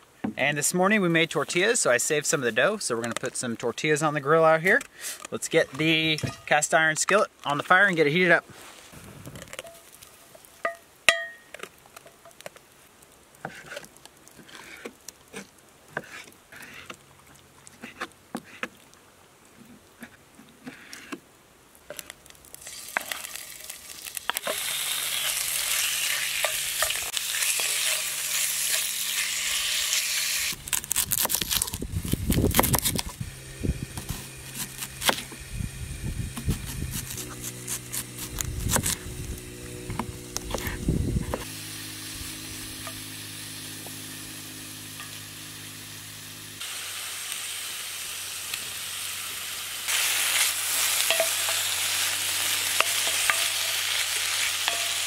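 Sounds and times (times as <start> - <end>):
meat sizzling in pan: 22.5 - 30.6, 41.4 - 55.0.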